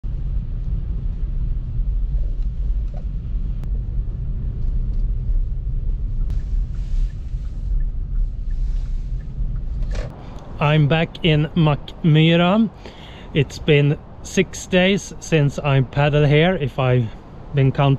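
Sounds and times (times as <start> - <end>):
car driving rumble inside cabin: 0.0 - 12.6.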